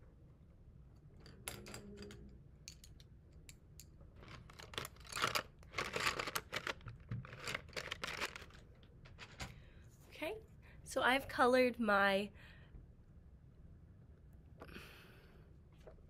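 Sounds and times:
pencils and paper rustling: 4.2 - 9.5.

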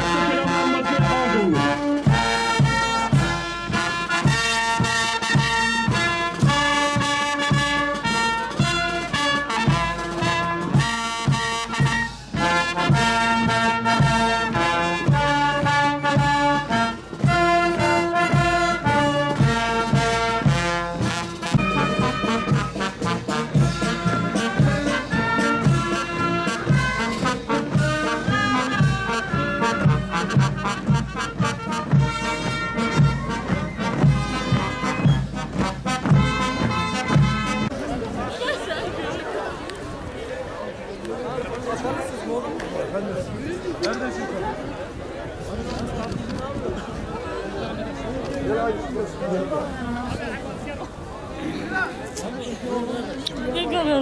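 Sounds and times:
steady drum beat: 0.0 - 37.7
brass band playing a march: 0.0 - 38.0.

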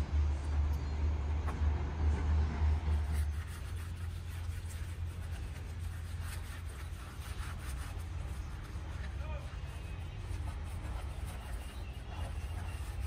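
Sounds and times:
steady low rumble: 0.0 - 13.0
rag scrubbing cement: 2.9 - 13.0.

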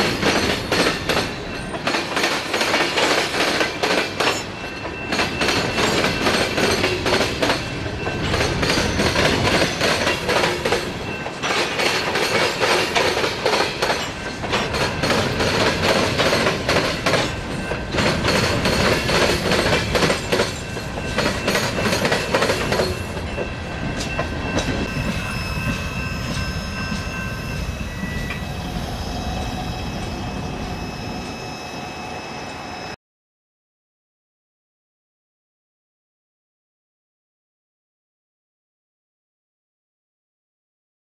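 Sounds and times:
train wheels clattering: 0.0 - 28.4
high wheel squeals: 24.0 - 33.0.

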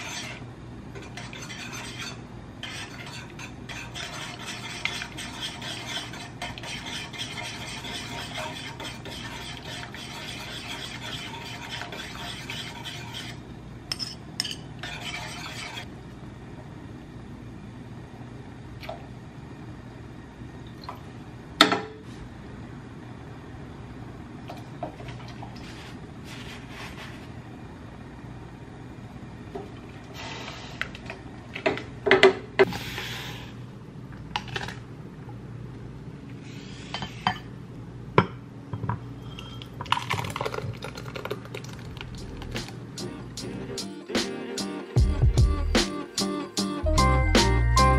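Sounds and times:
utensil scraping a saucepan: 0.0 - 0.4, 1.0 - 15.9, 25.6 - 27.3.

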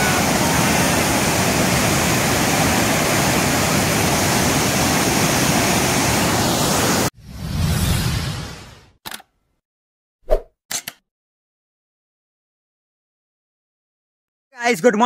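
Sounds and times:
waterfall rushing over rocks: 0.0 - 7.1.

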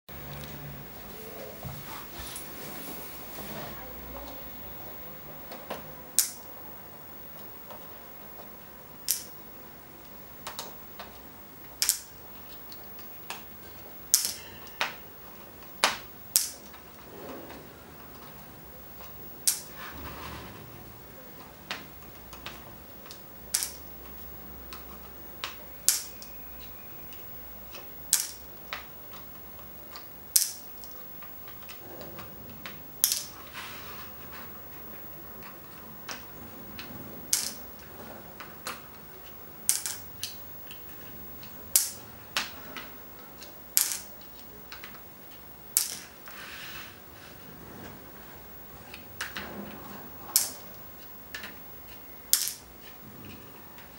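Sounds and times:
plastic pegs clicking on board: 5.6 - 6.4, 9.0 - 9.4, 11.8 - 13.5, 14.1 - 15.0, 15.7 - 16.7, 19.4 - 19.7, 21.7 - 31.8, 33.0 - 33.3, 37.3 - 37.6, 39.6 - 40.8, 41.4 - 46.1, 50.3 - 50.6, 51.3 - 52.7.

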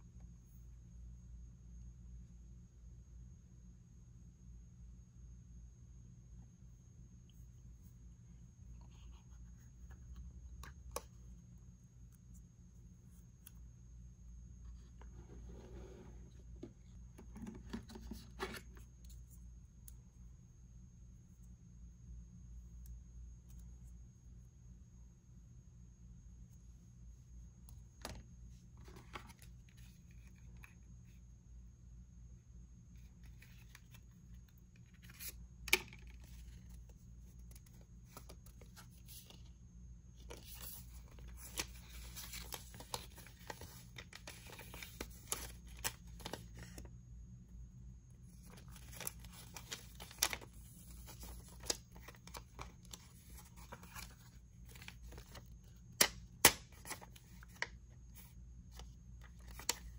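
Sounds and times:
packaging tearing and rustling: 48.4 - 54.1.

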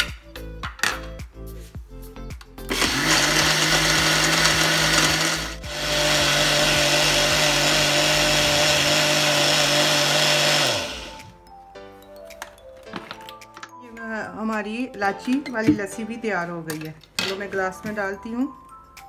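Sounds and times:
blender motor running: 2.7 - 11.3.

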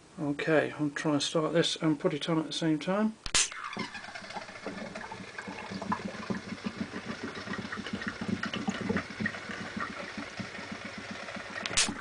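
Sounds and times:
gas bubbling through water: 3.6 - 12.0
small pops: 5.4 - 12.0.

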